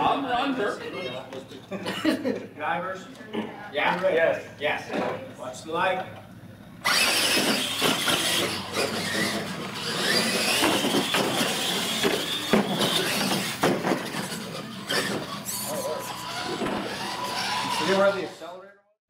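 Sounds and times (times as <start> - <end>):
electric motors whining: 6.0 - 18.6
toy trucks landing knocks: 6.8 - 15.4
tyres on hard floor: 10.2 - 15.3, 16.4 - 17.0.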